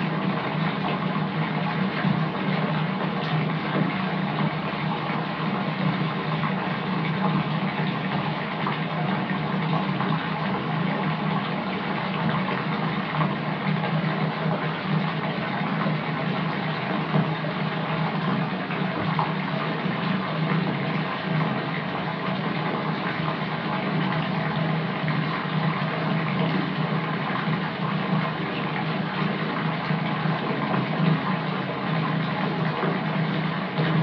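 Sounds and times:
tap water filling bathtub: 0:00.0 - 0:34.0.

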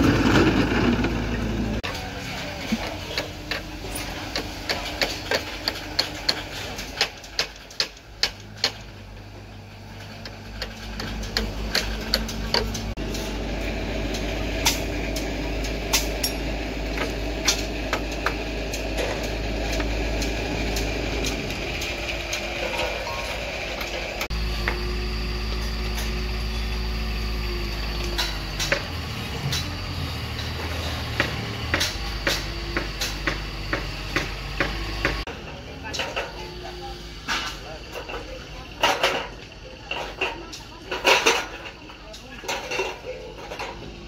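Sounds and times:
hand tools tapping and clicking: 0:02.8 - 0:08.9, 0:10.2 - 0:13.0, 0:31.1 - 0:35.2.

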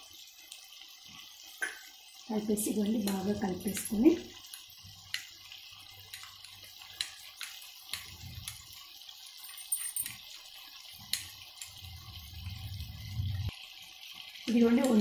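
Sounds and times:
spoon clinking on glass: 0:09.4 - 0:10.2
liquid swishing: 0:11.4 - 0:13.5.

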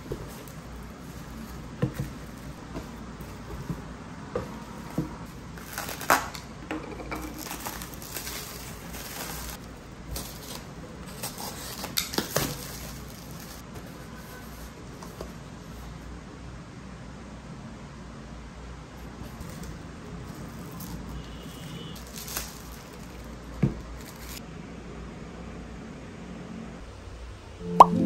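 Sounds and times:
cardboard rustling: 0:00.0 - 0:06.5, 0:07.2 - 0:15.5, 0:19.4 - 0:24.4
plastic wrap crinkling: 0:04.4 - 0:06.6, 0:07.3 - 0:13.7, 0:19.4 - 0:24.4.

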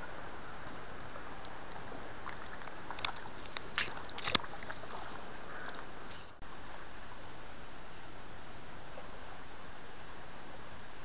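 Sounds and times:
stream running over stones: 0:00.0 - 0:11.0
fish splashing: 0:01.5 - 0:06.3.

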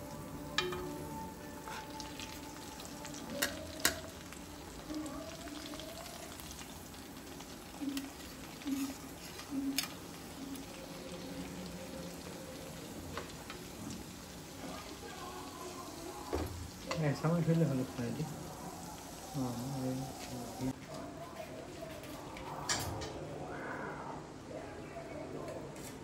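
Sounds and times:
food sizzling in a pan: 0:00.0 - 0:20.8
spoon clinking against pan: 0:00.5 - 0:01.8.

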